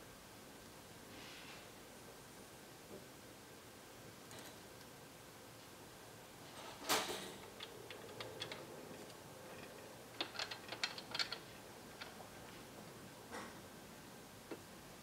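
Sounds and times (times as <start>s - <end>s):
small parts clicking and tapping: 7.4s - 12.4s.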